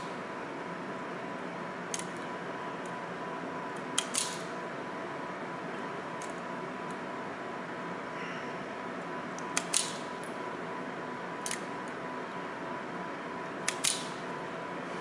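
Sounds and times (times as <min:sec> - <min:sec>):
steady hum: 0:00.0 - 0:15.0
wire stripper snipping wire: 0:04.0 - 0:04.4, 0:09.6 - 0:10.1, 0:13.7 - 0:14.2.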